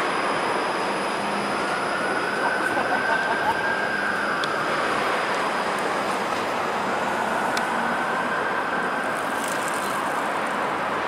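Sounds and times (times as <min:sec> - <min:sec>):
street noise: 0:00.0 - 0:11.0
streetcar rolling on track: 0:00.0 - 0:11.0.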